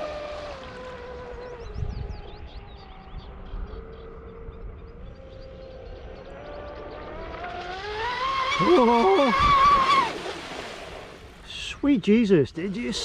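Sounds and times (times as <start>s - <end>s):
toy boat electric motor whining: 6.6s - 10.2s.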